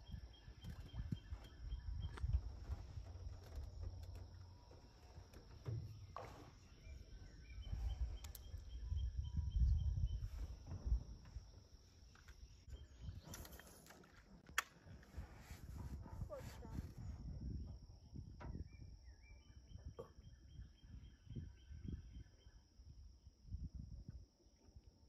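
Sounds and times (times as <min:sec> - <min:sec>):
bird chirping: 0:00.0 - 0:13.8
rumbling of movement in a boat: 0:00.0 - 0:14.4, 0:15.0 - 0:19.2.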